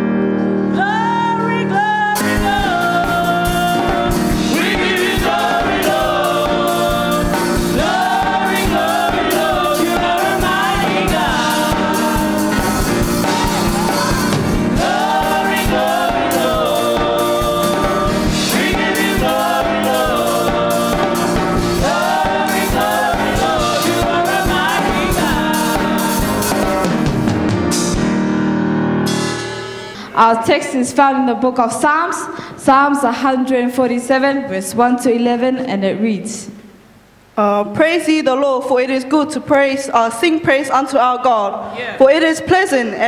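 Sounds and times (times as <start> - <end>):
group singing gospel song: 2.2 - 27.2
steady beat: 2.4 - 27.9.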